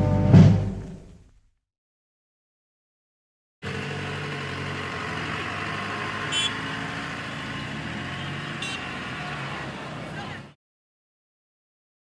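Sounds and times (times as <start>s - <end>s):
car engine hum: 3.6s - 10.6s
road noise: 3.6s - 10.6s.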